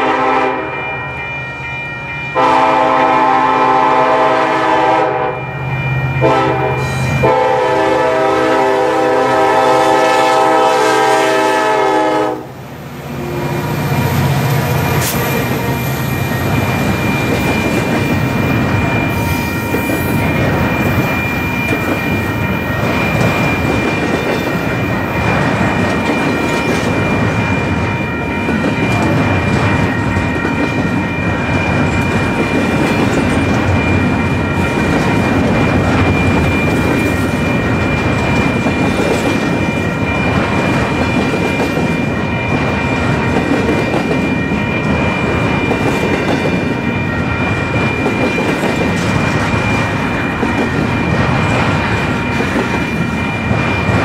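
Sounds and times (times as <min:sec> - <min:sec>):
train horn blasts: 0:00.0 - 0:00.9, 0:02.3 - 0:05.5, 0:06.2 - 0:12.6
train wheels rumbling on rails: 0:02.4 - 0:54.0.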